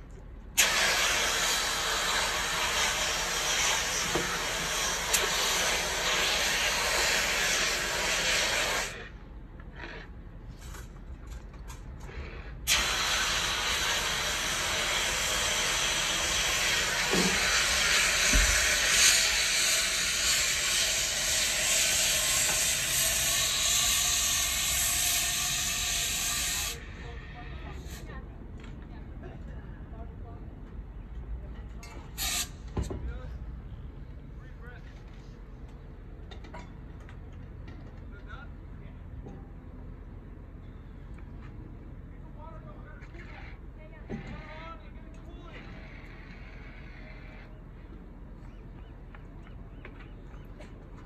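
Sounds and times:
fire extinguisher hissing: 0:00.5 - 0:09.1, 0:12.6 - 0:27.1, 0:32.2 - 0:32.6.

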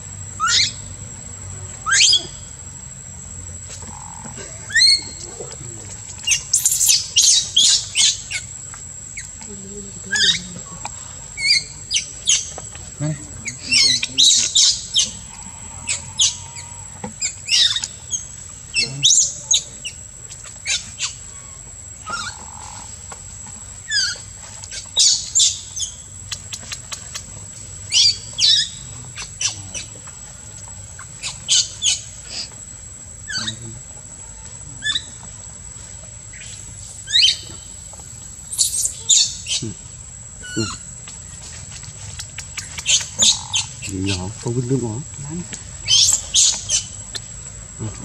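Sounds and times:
high-pitched animal calls: 0:00.4 - 0:00.8, 0:01.8 - 0:02.5, 0:03.8 - 0:08.5, 0:10.0 - 0:22.9, 0:36.3 - 0:37.8, 0:38.5 - 0:40.9, 0:42.2 - 0:44.4, 0:45.8 - 0:47.9.

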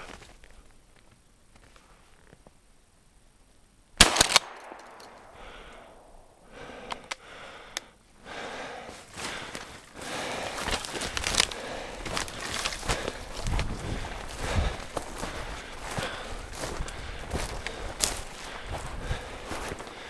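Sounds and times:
shotgun shot: 0:04.0 - 0:05.2
footsteps crunching through snow: 0:08.6 - 0:20.0.

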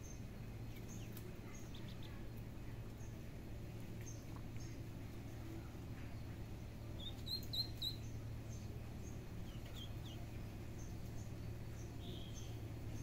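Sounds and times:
low steady hum: 0:00.0 - 0:13.0
ducklings peeping: 0:07.0 - 0:13.0.

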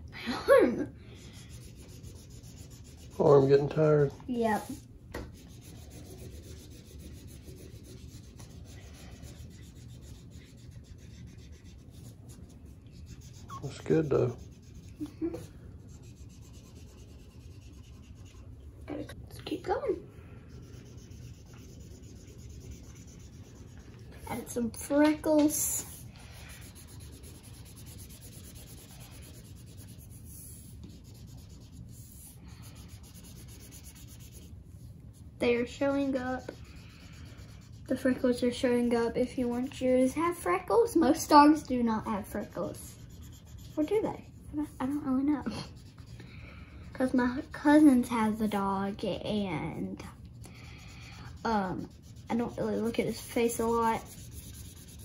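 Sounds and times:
marker scribbling on paper: 0:01.2 - 0:03.3, 0:04.6 - 0:19.8, 0:20.5 - 0:34.6, 0:35.4 - 0:38.3, 0:42.1 - 0:46.2, 0:50.8 - 0:55.0
marker tapping and scratching paper: 0:24.8 - 0:32.1.

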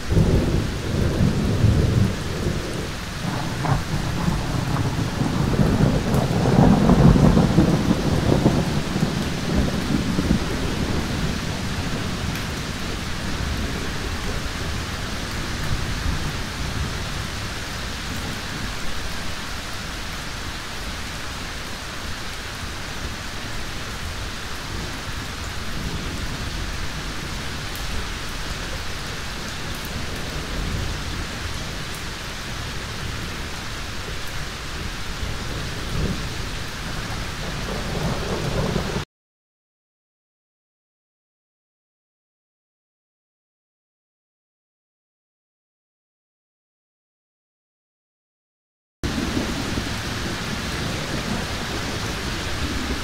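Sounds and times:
thunder rumbling: 0:00.0 - 0:19.6, 0:23.0 - 0:39.0, 0:49.0 - 0:53.0
heavy rain: 0:00.0 - 0:39.1, 0:49.0 - 0:53.0.

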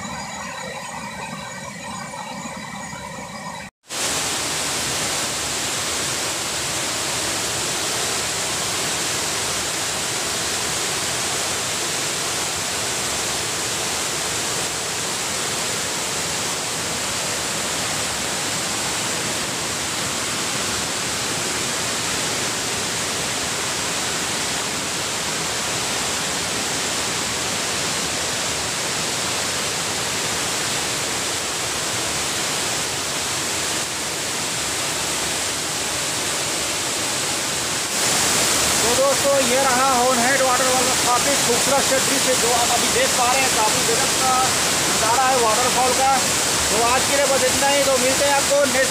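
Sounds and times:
waterfall rushing: 0:03.9 - 0:48.9.

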